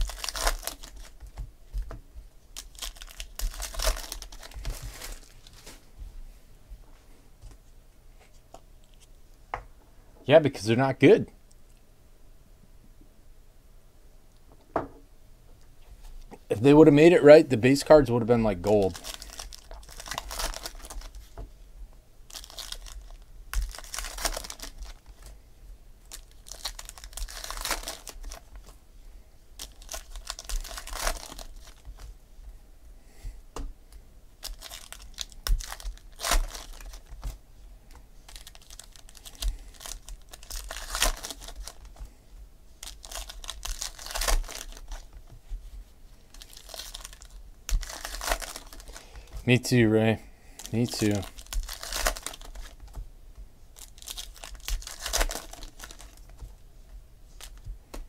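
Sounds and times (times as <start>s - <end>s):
foil wrappers crinkling and tearing: 0.0s - 1.4s, 2.5s - 5.8s, 17.8s - 21.3s, 22.3s - 25.3s, 26.0s - 28.8s, 29.6s - 32.0s, 34.4s - 37.4s, 38.2s - 42.0s, 42.8s - 45.3s, 46.2s - 49.5s, 50.5s - 53.0s, 53.8s - 56.5s, 57.4s - 57.7s
cards being sorted by hand: 0.0s - 5.9s, 18.4s - 21.5s, 22.3s - 25.4s, 26.1s - 28.8s, 29.6s - 32.1s, 34.4s - 42.1s, 42.8s - 49.5s, 50.5s - 53.1s, 53.8s - 56.6s.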